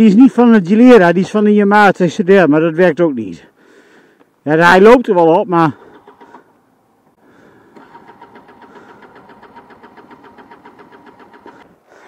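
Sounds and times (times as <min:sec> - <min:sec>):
scooter engine pulsing: 0:05.7 - 0:06.5, 0:07.3 - 0:12.0.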